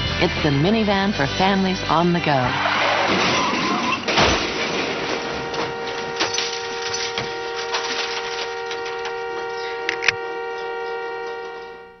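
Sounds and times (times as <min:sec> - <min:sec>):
two-tone car horn: 0:03.3 - 0:12.0.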